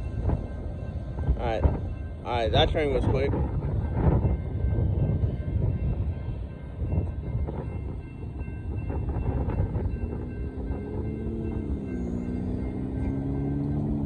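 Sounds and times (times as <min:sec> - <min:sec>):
freight train rumbling: 0:00.0 - 0:14.0
road vehicle engine hum: 0:03.4 - 0:14.0.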